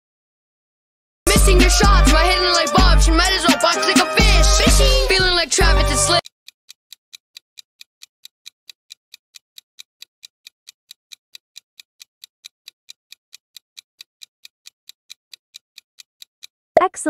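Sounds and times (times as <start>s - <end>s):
quick clock ticks: 6.2s - 16.6s.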